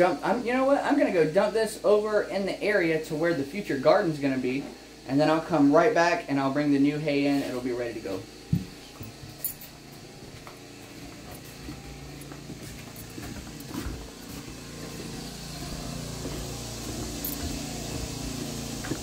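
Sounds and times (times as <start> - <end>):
high hiss: 0.0 - 19.0
low mechanical hum: 0.0 - 19.0
faint footsteps: 7.4 - 19.0.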